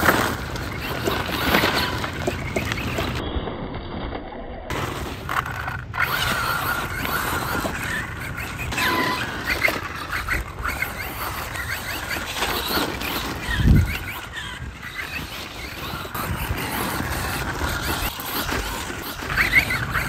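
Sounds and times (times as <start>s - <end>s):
tyres crunching on gravel: 0.0s - 3.2s, 4.7s - 20.0s
electric motor whine: 4.7s - 20.0s.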